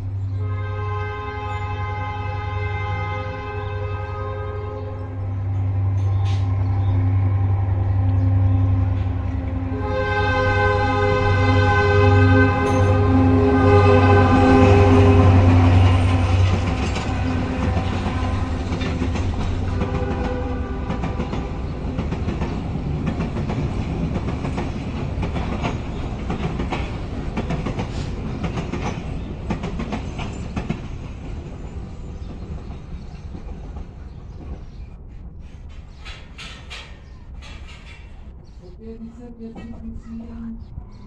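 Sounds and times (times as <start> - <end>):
diesel train horn: 0.3 - 21.8
train wheels clickety-clack: 14.2 - 38.5.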